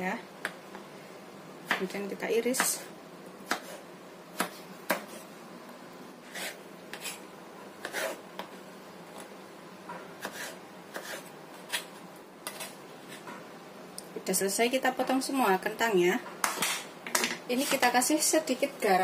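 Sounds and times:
knife chopping on cutting board: 3.4 - 3.8, 4.4 - 5.2, 7.8 - 8.5, 10.2 - 13.2.

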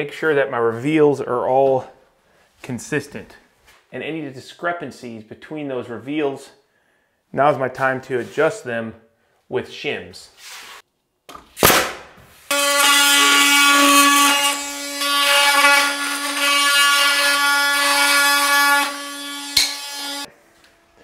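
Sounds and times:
pneumatic nail gun shot: 11.6 - 12.1.

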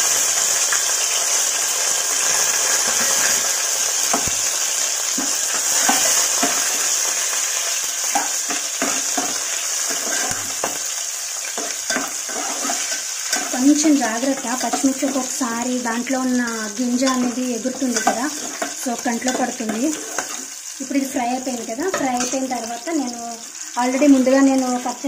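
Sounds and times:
spices sizzling in hot oil: 0.0 - 25.0
spoon stirring in metal pot: 8.1 - 10.9, 11.5 - 13.6, 14.2 - 15.4, 17.0 - 20.6.

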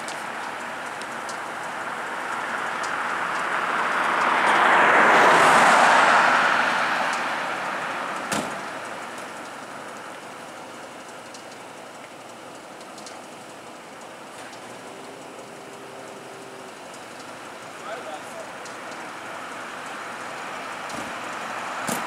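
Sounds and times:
vehicle passing by: 2.4 - 8.8.

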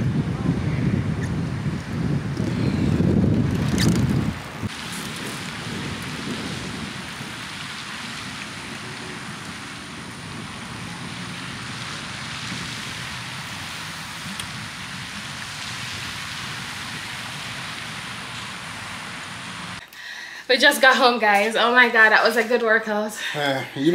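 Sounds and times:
fountain water spray hissing: 4.6 - 19.8.

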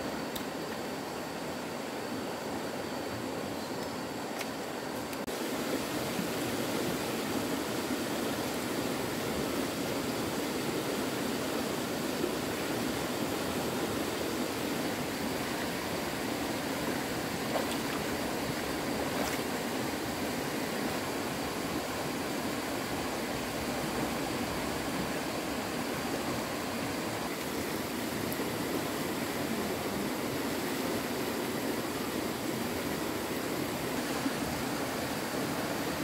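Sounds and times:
stream water flowing: 0.0 - 36.0.

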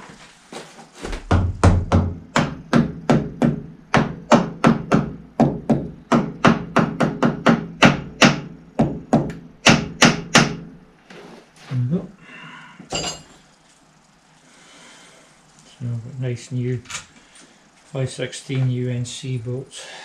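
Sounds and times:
hammer knocking on metal: 1.2 - 10.7.

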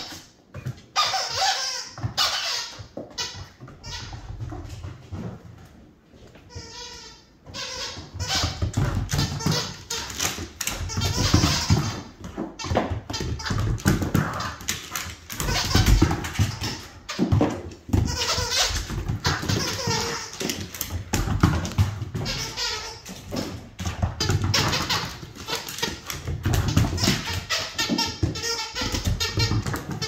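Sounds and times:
dog play noises: 0.0 - 30.0.

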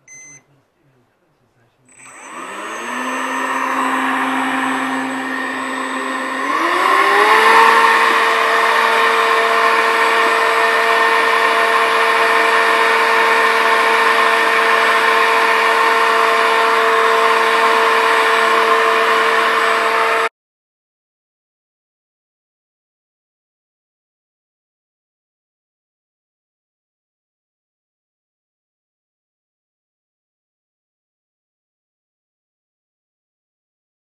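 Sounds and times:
handheld vacuum cleaner whine: 1.9 - 20.3.

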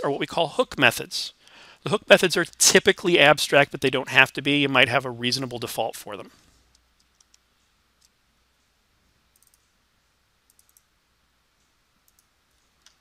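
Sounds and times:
mouse and keyboard clicks: 7.0 - 7.4.

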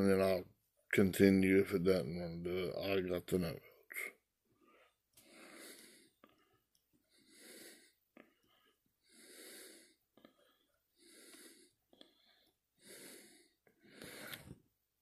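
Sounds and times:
man breathing softly: 4.4 - 14.7.

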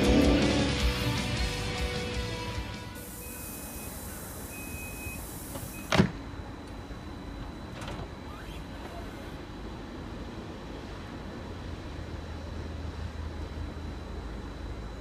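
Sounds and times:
train humming: 0.0 - 4.6
air hissing: 3.0 - 6.0
short beeps: 3.1 - 5.9
train door banging shut: 5.5 - 6.2, 7.7 - 8.2.

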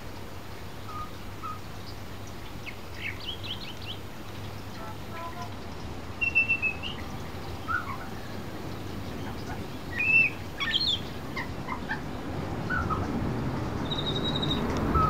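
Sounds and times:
rain hissing: 0.0 - 15.0
bird whistling song: 0.8 - 2.0, 2.6 - 4.1, 6.2 - 8.4, 9.1 - 12.0, 12.7 - 13.1, 13.8 - 15.0.

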